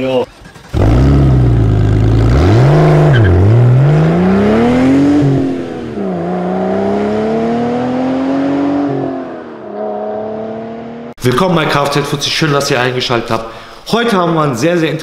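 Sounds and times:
car engine revving: 0.3s - 11.2s.

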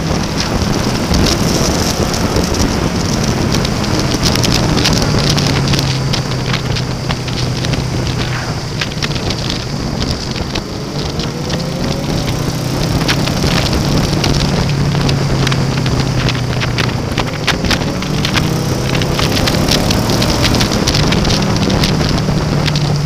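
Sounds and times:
motorcycle engine running: 0.0s - 23.0s
wind rush on microphone: 0.0s - 23.0s.

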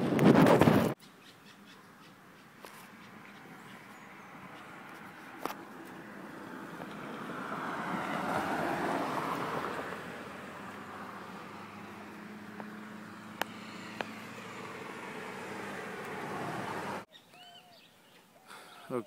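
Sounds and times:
car driving past: 3.0s - 17.1s.

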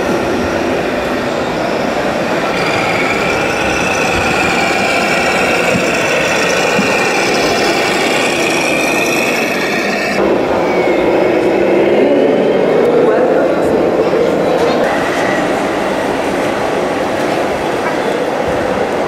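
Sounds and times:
model truck motor whine: 2.4s - 10.3s.

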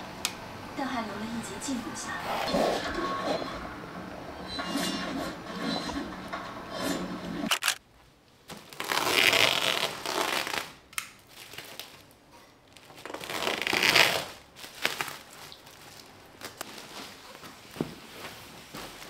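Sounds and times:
plastic sack rustling and crinkling: 8.4s - 19.0s.

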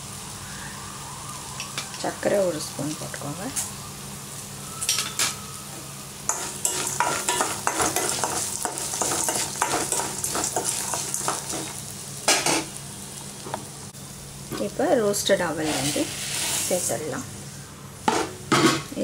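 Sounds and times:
oil sizzling: 0.0s - 19.0s
spoon scraping metal pan: 6.3s - 11.8s.

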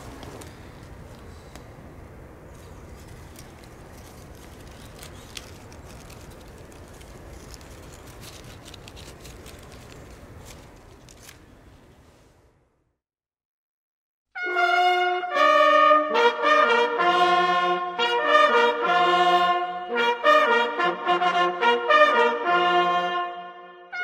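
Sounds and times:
twig and clothing rustling: 2.4s - 12.4s.

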